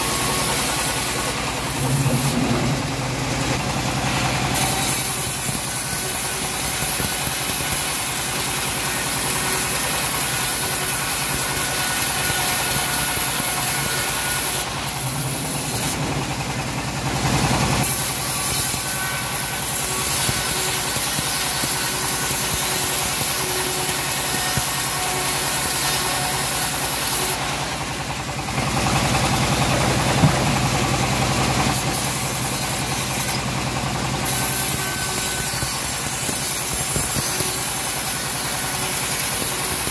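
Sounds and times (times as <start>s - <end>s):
saw blade hissing through wood: 0.0s - 16.4s, 17.8s - 27.4s, 31.7s - 33.5s, 34.1s - 39.9s
band saw mill humming: 0.0s - 39.9s.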